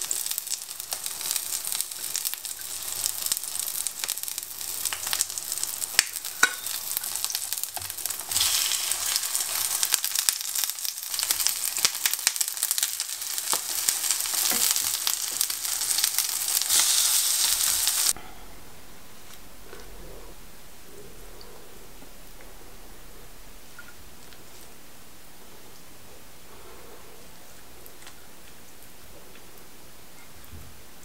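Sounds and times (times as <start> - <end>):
pancakes sizzling in oil: 0.0 - 18.2
pops and clicks of utensils: 6.0 - 6.8.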